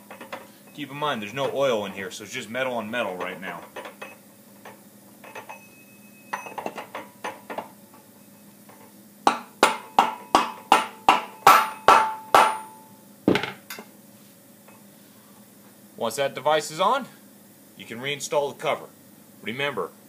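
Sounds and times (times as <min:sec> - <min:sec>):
mallet tapping metal: 0:09.3 - 0:12.9.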